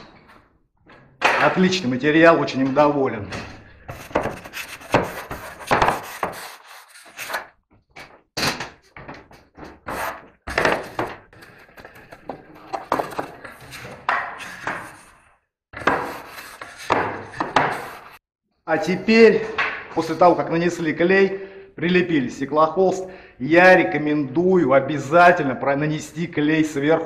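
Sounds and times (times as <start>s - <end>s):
spatula scraping over wall canvas: 3.9s - 7.5s, 15.8s - 18.2s.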